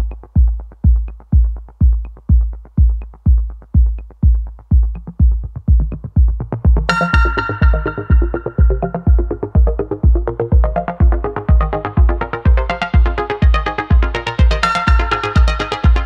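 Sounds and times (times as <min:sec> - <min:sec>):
heavy kick drum: 0:00.0 - 0:16.0
bright synthesizer: 0:06.8 - 0:16.0.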